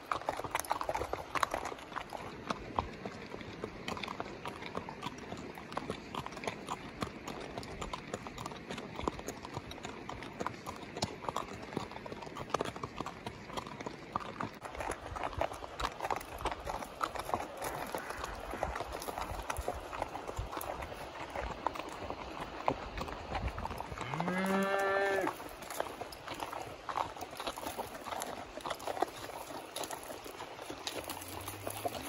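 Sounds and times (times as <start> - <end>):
hooves on gravel: 0.0 - 32.0.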